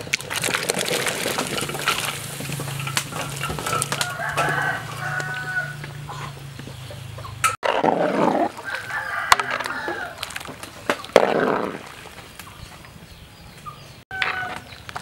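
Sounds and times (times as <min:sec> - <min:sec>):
chickens calling: 0:00.0 - 0:15.0
rooster crowing: 0:03.6 - 0:05.9, 0:08.6 - 0:10.2, 0:14.1 - 0:14.6.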